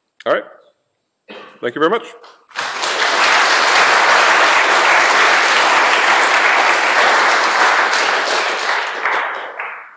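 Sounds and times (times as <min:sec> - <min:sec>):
audience applauding: 0:02.5 - 0:09.9.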